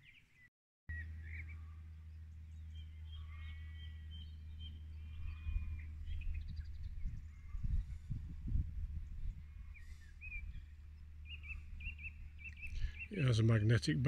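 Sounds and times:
birds chirping and whistling: 0:00.0 - 0:14.0
steady low rumble: 0:00.9 - 0:14.0
wind buffeting microphone: 0:03.9 - 0:13.3.

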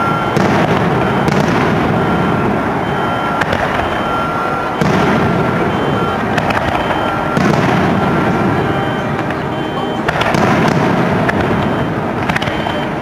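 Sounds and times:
firework shells bursting: 0:00.0 - 0:02.6, 0:03.2 - 0:13.0
sharp firework cracks: 0:00.4 - 0:02.1, 0:03.4 - 0:03.9, 0:06.3 - 0:08.3, 0:10.0 - 0:12.7.

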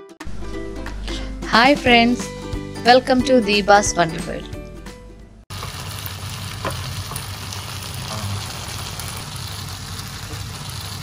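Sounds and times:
low hum: 0:00.3 - 0:02.9
food sizzling in a pan: 0:05.5 - 0:11.0.

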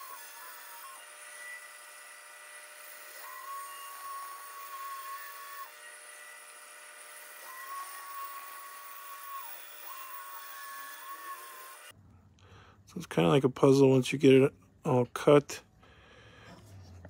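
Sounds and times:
band saw cutting wood: 0:00.0 - 0:11.9.

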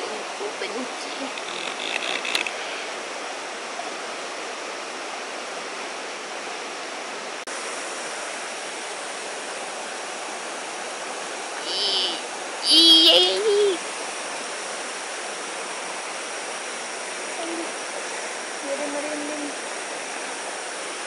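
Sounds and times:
high voice-like squeal: 0:11.6 - 0:13.8.

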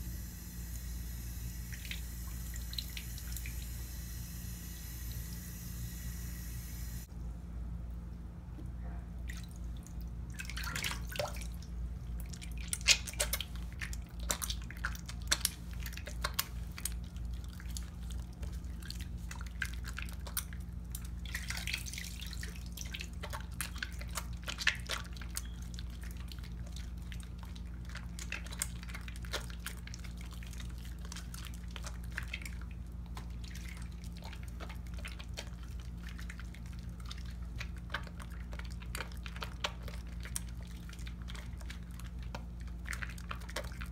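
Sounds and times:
steady low hum: 0:00.0 - 0:43.9
hands splashing in sink water: 0:09.3 - 0:43.9
wet clicks of soap: 0:09.3 - 0:43.9.

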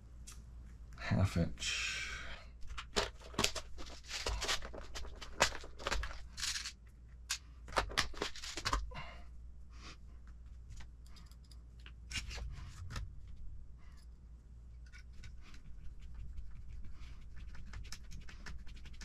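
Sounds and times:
plastic box crinkling and clicking: 0:02.7 - 0:06.7, 0:07.7 - 0:08.9.

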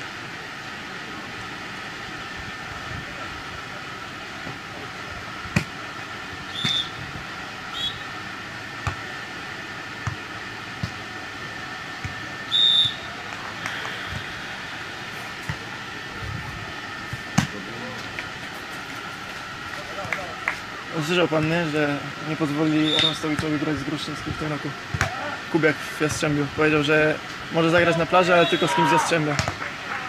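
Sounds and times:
steady background hum: 0:00.0 - 0:30.0
referee's whistle blasts: 0:06.5 - 0:07.0, 0:07.7 - 0:08.1, 0:12.4 - 0:13.1, 0:22.7 - 0:23.3, 0:28.2 - 0:29.1.

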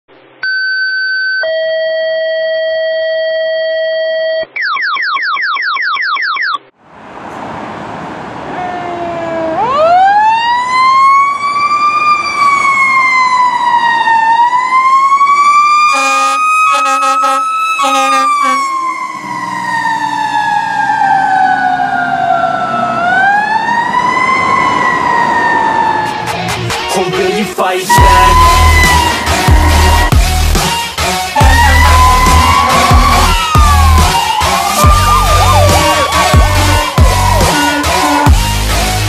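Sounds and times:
fire engine siren wailing: 0:06.9 - 0:26.7, 0:27.9 - 0:39.0
short horn blasts: 0:15.9 - 0:18.7, 0:27.9 - 0:30.1.

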